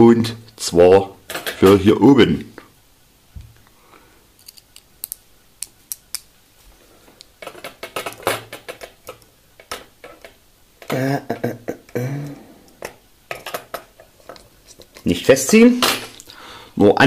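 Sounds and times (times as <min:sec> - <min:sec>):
small plastic parts clicking: 0:04.4 - 0:06.3.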